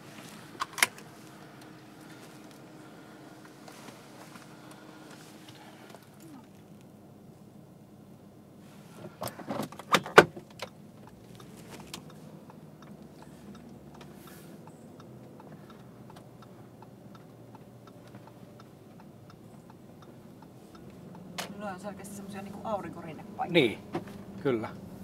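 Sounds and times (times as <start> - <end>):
engine and road hum: 0.0 - 25.0
light ticks: 10.5 - 21.6.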